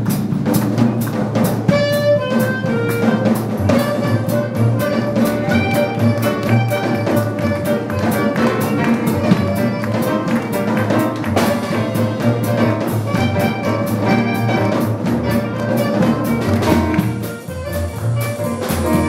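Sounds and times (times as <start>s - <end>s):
drum kit beat: 0.0s - 19.0s
clarinet melody: 1.7s - 19.0s.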